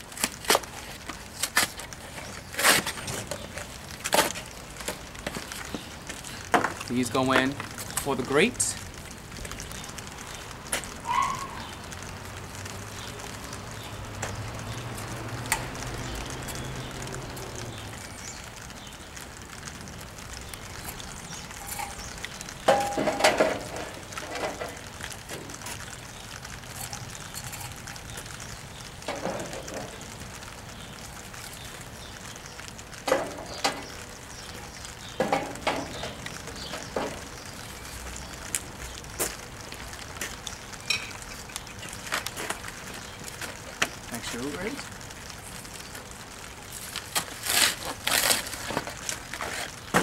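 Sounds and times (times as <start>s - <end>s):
metal grill bars clanking: 22.7s - 25.5s, 35.2s - 37.2s.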